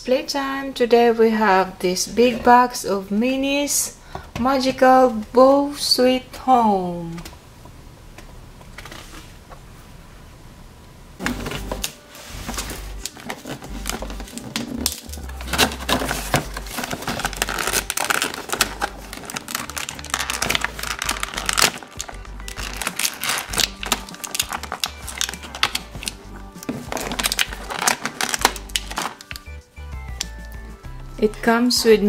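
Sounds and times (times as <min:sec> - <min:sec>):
plastic packaging crinkling: 0:11.2 - 0:30.4
background music: 0:11.2 - 0:32.0.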